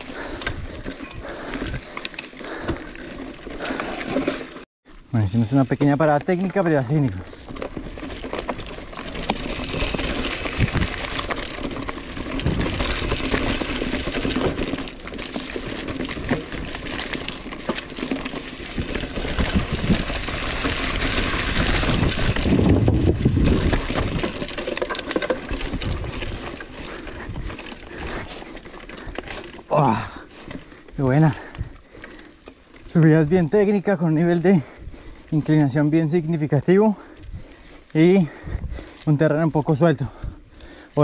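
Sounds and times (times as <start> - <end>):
bike rattling and knocking: 0.0 - 4.6, 5.6 - 40.8
bike tyres on loose ground: 0.0 - 41.0
wind rumble on microphone: 18.8 - 24.5, 38.4 - 38.9.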